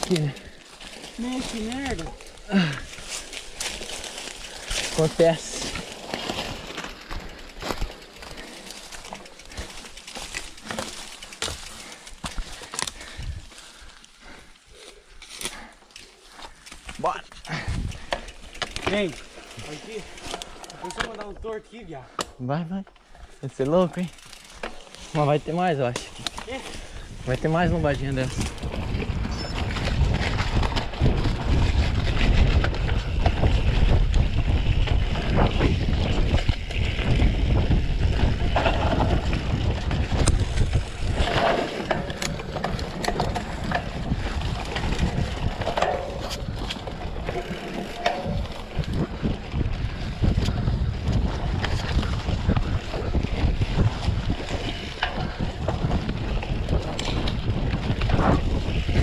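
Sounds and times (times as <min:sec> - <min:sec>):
bike rattling over ground: 0:00.0 - 0:22.0, 0:23.1 - 0:59.0
wind rushing over microphone: 0:26.8 - 0:59.0.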